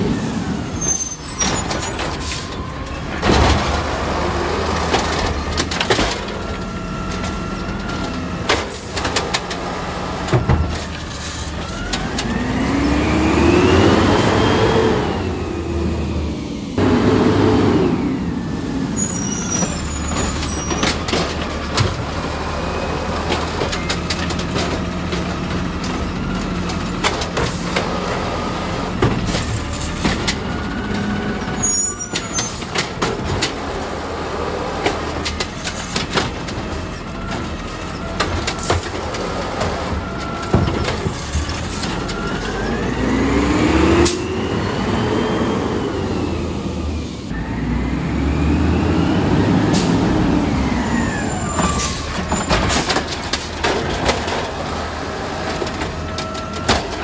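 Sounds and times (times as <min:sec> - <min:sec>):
diesel engine running: 0:00.0 - 0:57.0
hydraulics whining: 0:00.0 - 0:57.0
metal clanks of bin gear: 0:55.5 - 0:57.0.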